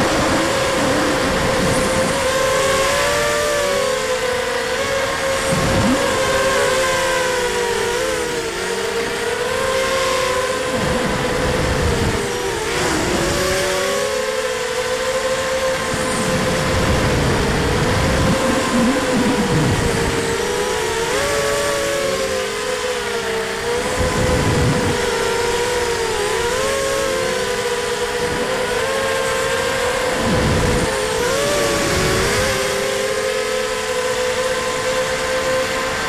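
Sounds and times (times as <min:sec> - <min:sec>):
quadcopter motors whining: 0:00.0 - 0:36.0
wind buffeting microphone: 0:23.9 - 0:25.2.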